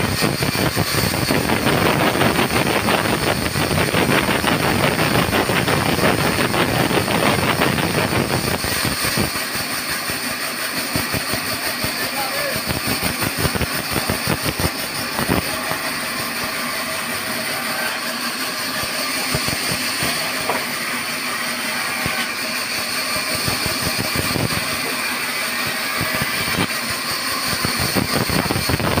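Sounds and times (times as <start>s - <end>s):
band saw cutting log: 0.0s - 29.0s
wood knocking: 20.4s - 20.8s.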